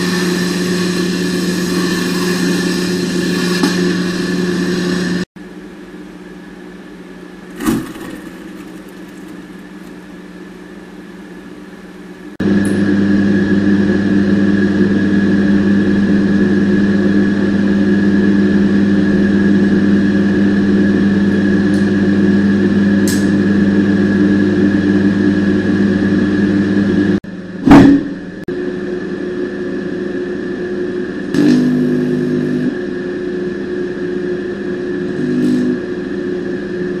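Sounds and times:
microwave oven humming: 0.0 - 37.0
loud bang: 27.6 - 28.2.

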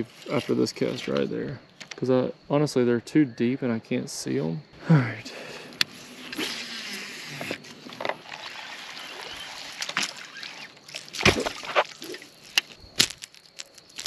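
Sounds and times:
fishing line reeling hiss: 5.7 - 10.8.

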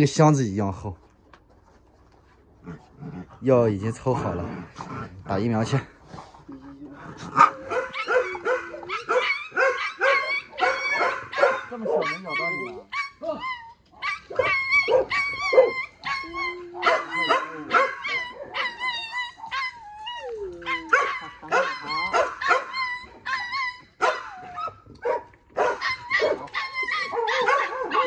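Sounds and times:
puppy yelping and crying: 7.3 - 28.0.

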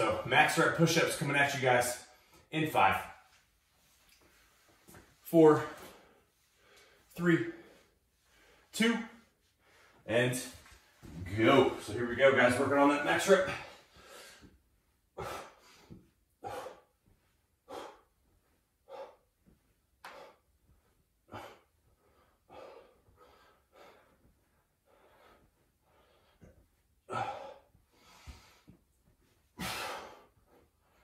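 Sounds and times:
person breathing hard: 5.8 - 8.7, 13.5 - 28.8, 29.5 - 31.0.

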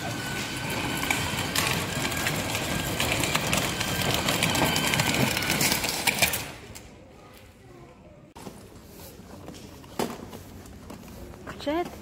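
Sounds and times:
plastic wheels clattering on stones: 0.0 - 6.9.

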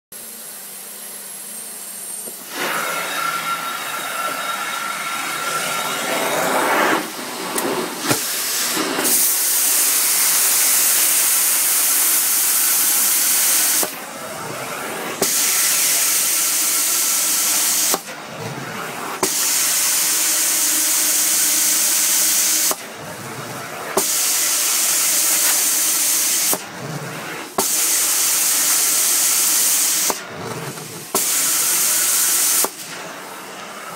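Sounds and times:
vacuum suction rushing: 2.3 - 10.3.

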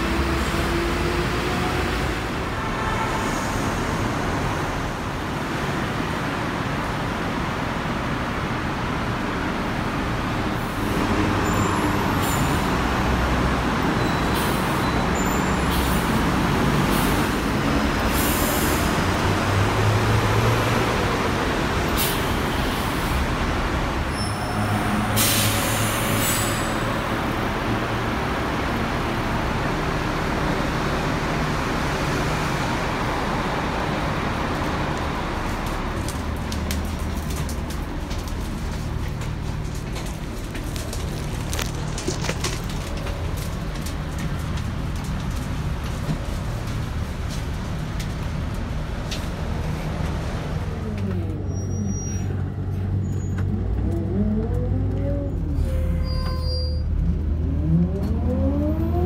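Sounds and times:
traffic noise: 0.0 - 59.0
air brake hisses: 25.0 - 26.8.

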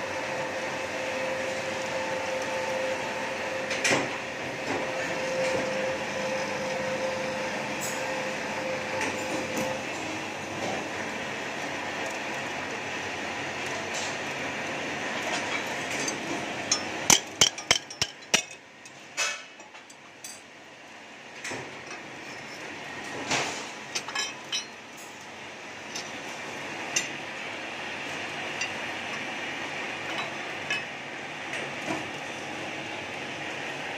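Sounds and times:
steady machine noise: 0.0 - 19.8.

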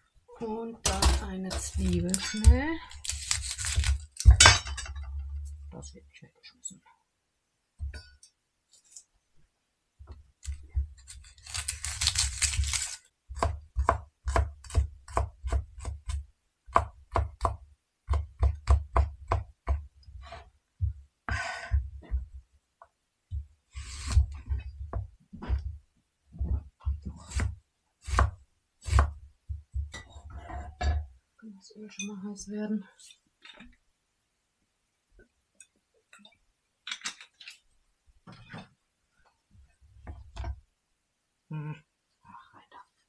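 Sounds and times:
knife chopping on cutting board: 12.5 - 20.4, 26.6 - 29.2
knife scraping board: 23.7 - 24.5, 30.1 - 30.8.

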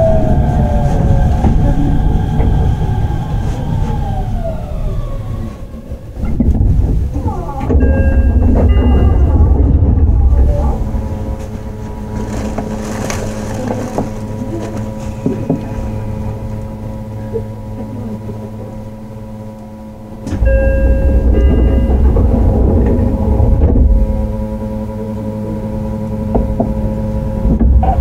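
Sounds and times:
electric train running noise: 0.0 - 28.0
low rumble: 0.0 - 28.0
steady low hums: 0.0 - 28.0
steady high tones: 18.9 - 26.2.

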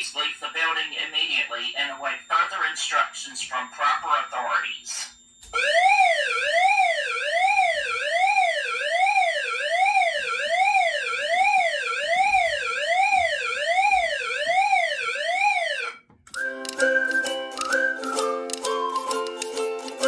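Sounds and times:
electronic siren sweeping up and down: 1.5 - 16.0.

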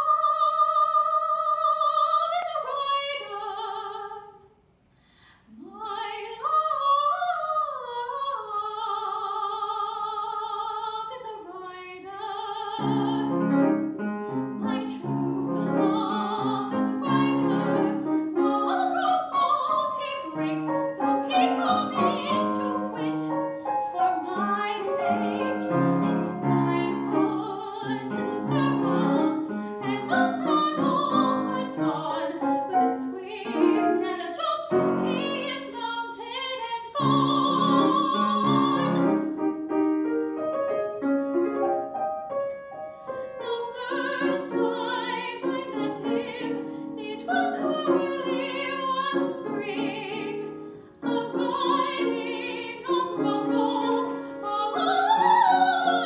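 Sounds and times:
soprano singing: 0.0 - 4.4, 5.5 - 56.0
grand piano chords: 12.6 - 35.9, 37.0 - 56.0.

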